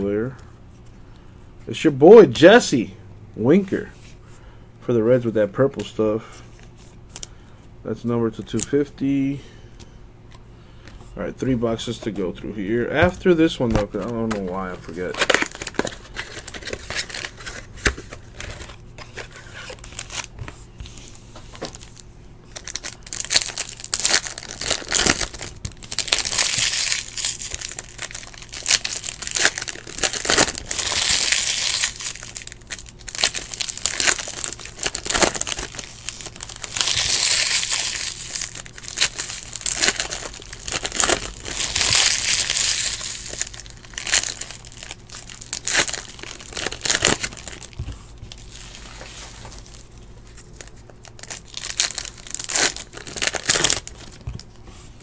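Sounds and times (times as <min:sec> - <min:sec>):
plastic wrap crinkling and tearing: 0:13.8 - 0:20.4, 0:21.5 - 0:54.6.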